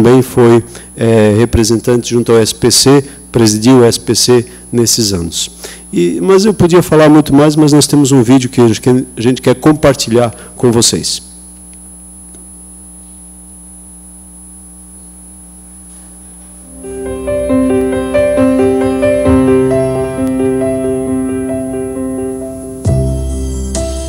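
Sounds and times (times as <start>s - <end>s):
low steady hum: 0.0s - 22.9s
gentle piano melody: 16.7s - 24.0s.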